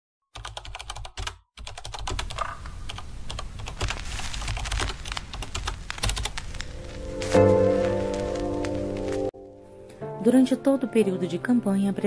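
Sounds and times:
typing on computer keyboard: 0.4 - 6.4.

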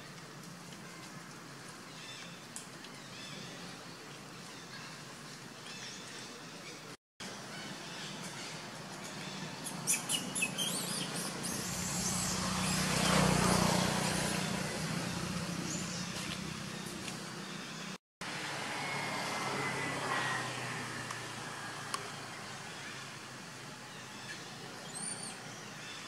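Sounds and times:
motor vehicle passing: 10.1 - 23.2.

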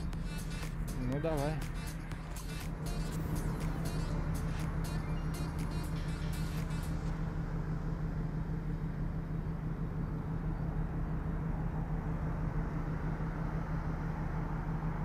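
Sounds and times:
engine droning: 0.0 - 15.0.

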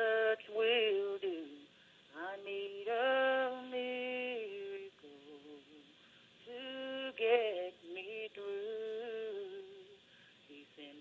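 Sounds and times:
person singing slow song: 0.0 - 11.0.

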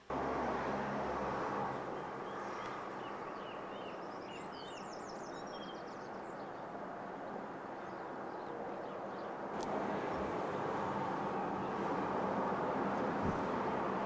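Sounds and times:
distant road traffic hum: 0.0 - 14.0
songbird chirping and trilling: 1.9 - 6.7.

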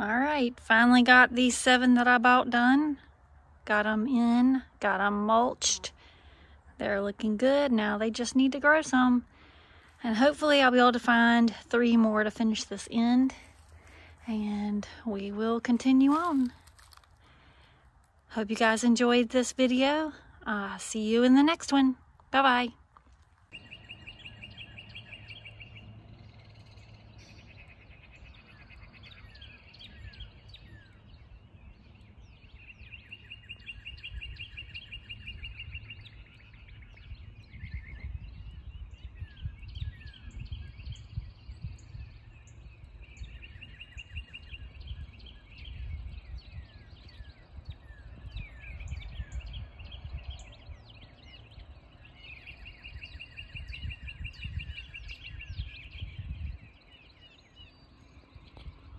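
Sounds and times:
songbirds chirping and singing: 0.0 - 22.7, 23.4 - 58.9.

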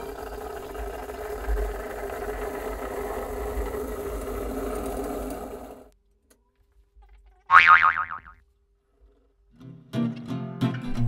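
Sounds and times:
siphon coffee maker bubbling: 0.0 - 4.1.

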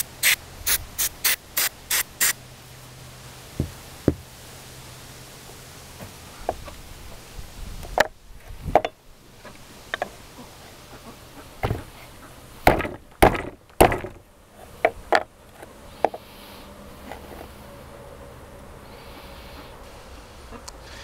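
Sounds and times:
metal hinge knocking on wood: 11.6 - 11.9.

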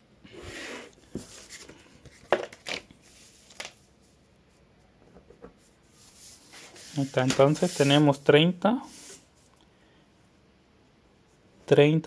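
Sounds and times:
paper rustling: 1.2 - 3.9, 5.6 - 8.2.

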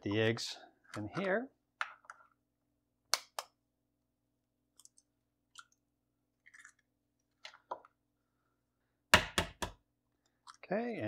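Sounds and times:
egg shells cracking: 4.7 - 7.9.

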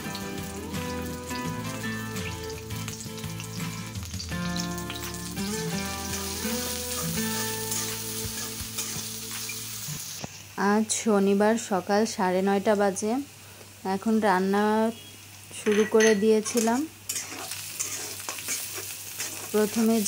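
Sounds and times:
background music: 0.0 - 9.9
onions sizzling in hot oil: 0.0 - 20.0
metal spatula stirring: 16.4 - 20.0.

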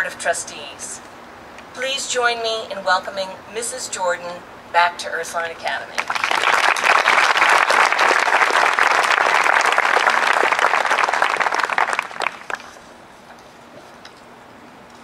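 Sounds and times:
audience applauding: 6.0 - 12.8.

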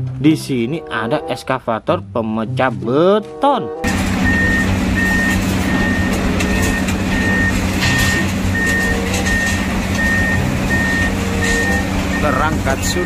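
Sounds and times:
excavator diesel engine running: 3.8 - 13.0
warning alarm beeping: 3.8 - 13.0.

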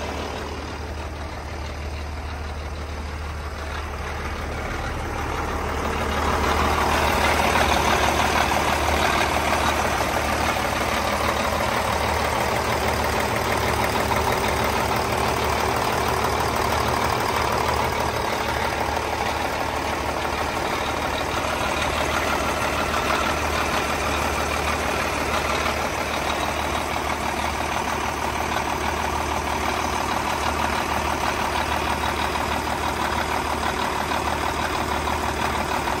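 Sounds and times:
truck diesel engine idling: 0.0 - 36.0.

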